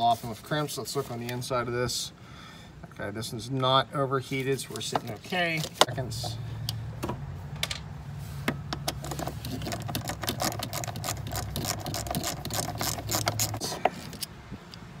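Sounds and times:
plastic clicking and scraping: 8.7s - 14.3s.

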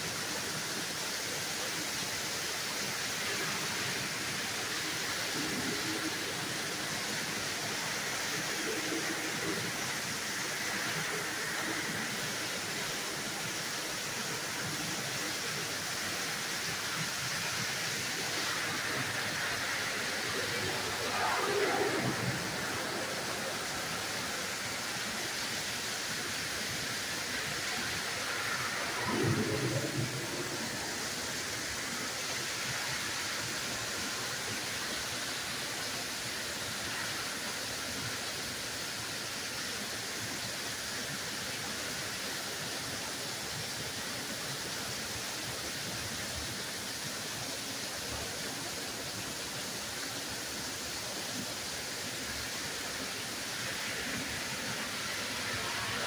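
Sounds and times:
torrential rain hiss: 0.0s - 56.0s.

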